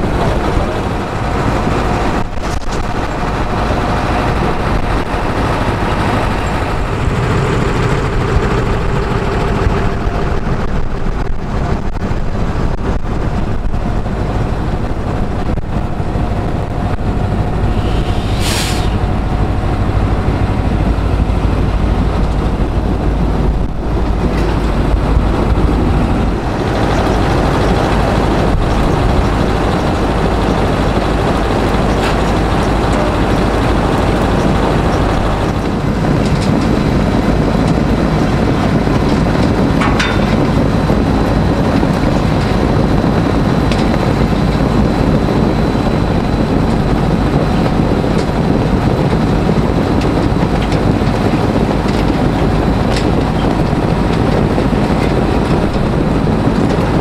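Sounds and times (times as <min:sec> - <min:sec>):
rattling conveyors: 0:00.0 - 0:57.0
tractor diesel engine: 0:00.0 - 0:57.0
short sharp hiss: 0:17.8 - 0:19.0.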